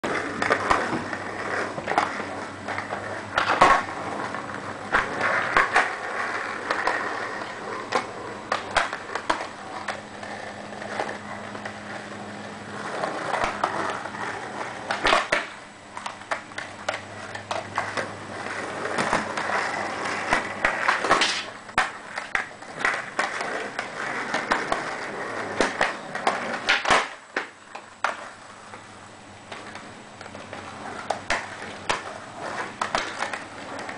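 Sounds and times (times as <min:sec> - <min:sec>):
skateboard clacks and knocks: 0:00.0 - 0:11.8, 0:12.8 - 0:28.9, 0:29.5 - 0:33.9
skateboards rolling on concrete: 0:00.0 - 0:33.9.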